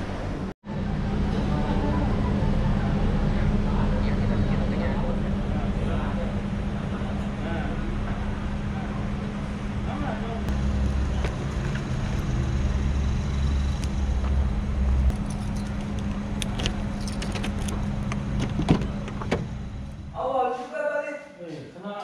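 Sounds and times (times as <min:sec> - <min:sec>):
steady low hum: 0:00.0 - 0:20.5
car keys jangling: 0:15.1 - 0:19.4.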